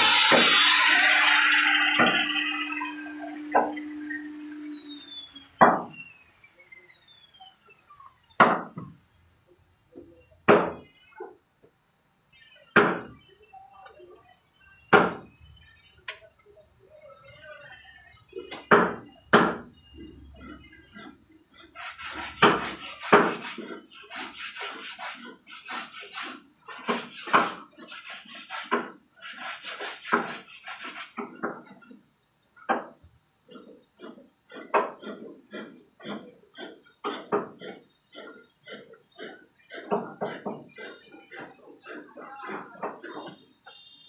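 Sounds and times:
rubbing strokes on wood: 0:21.0 - 0:32.0, 0:33.5 - 0:43.4.

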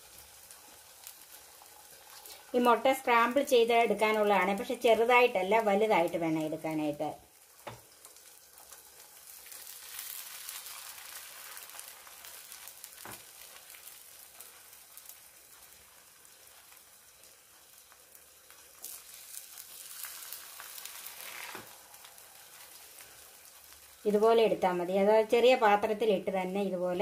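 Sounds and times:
eggs sizzling in oil: 0:00.0 - 0:27.0.

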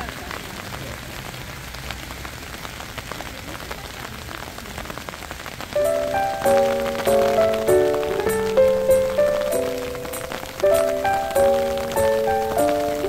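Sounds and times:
rain pattering on hard surface: 0:00.0 - 0:13.0
bell-like piano music: 0:05.8 - 0:13.0.

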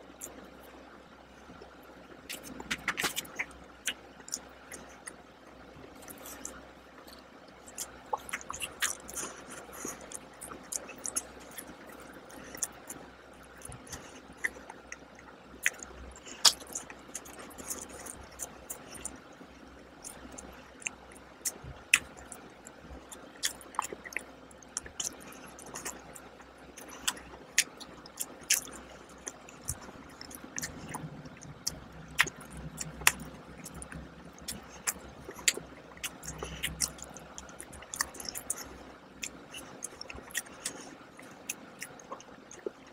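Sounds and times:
person chewing: 0:02.3 - 0:05.2, 0:05.9 - 0:42.9
wet mouth clicks: 0:02.3 - 0:05.2, 0:15.6 - 0:19.2, 0:23.1 - 0:42.9.

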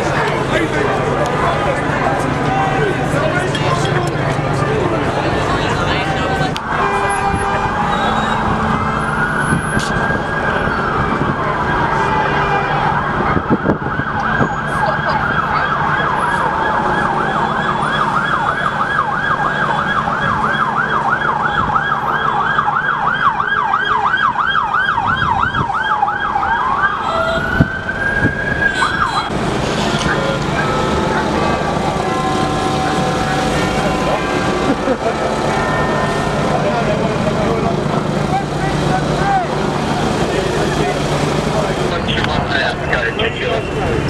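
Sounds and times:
traffic engine hum: 0:00.0 - 0:44.0
siren wailing: 0:00.4 - 0:44.0
siren yelping: 0:06.6 - 0:33.7.

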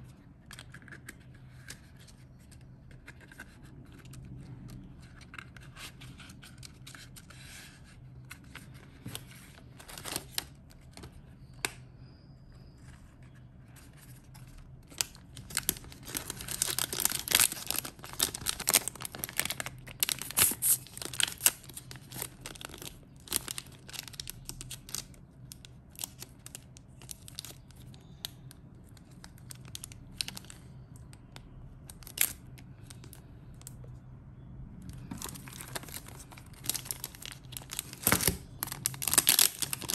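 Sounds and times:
plastic packaging crinkling: 0:08.4 - 0:11.6, 0:13.8 - 0:30.9, 0:31.8 - 0:33.8, 0:34.8 - 0:39.9.

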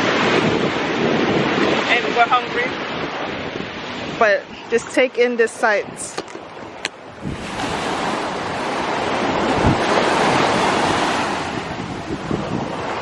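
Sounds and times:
surf breaking on sand beach: 0:00.0 - 0:13.0
wind on microphone: 0:00.0 - 0:13.0.

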